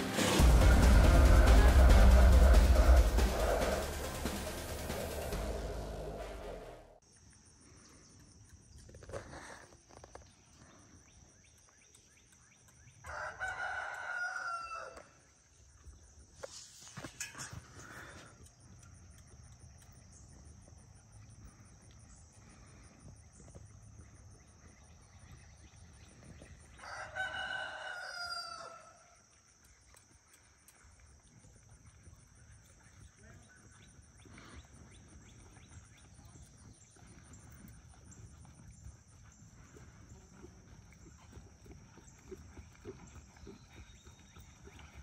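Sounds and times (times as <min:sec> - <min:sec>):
insects droning: 0:00.0 - 0:45.0
rooster crowing: 0:00.4 - 0:06.0, 0:13.0 - 0:15.1, 0:26.8 - 0:29.0.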